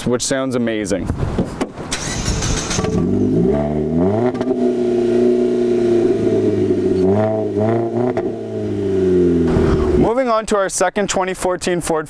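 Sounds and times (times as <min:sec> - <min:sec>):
car engine revving: 0:01.9 - 0:10.1.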